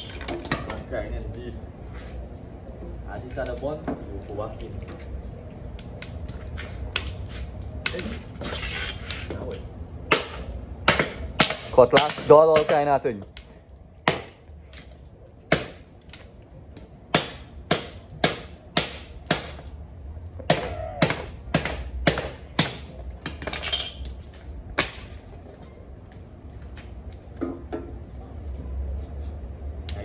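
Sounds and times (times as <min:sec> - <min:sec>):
machete chopping wood on concrete: 0:10.1 - 0:12.9, 0:14.0 - 0:14.8, 0:15.5 - 0:16.3, 0:17.1 - 0:19.7, 0:20.4 - 0:23.9, 0:24.7 - 0:25.2.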